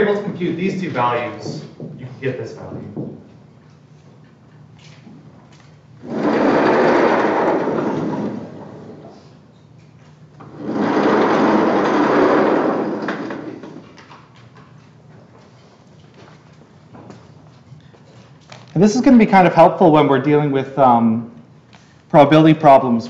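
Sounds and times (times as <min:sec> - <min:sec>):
chalkboard panels sliding: 0:06.0 - 0:09.3, 0:10.4 - 0:13.9.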